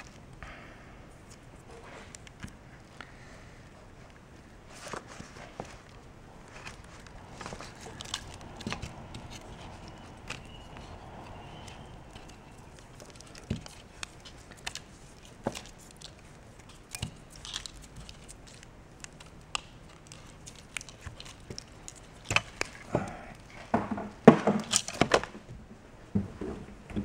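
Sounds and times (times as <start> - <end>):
plastic connectors clicking: 6.6 - 23.6.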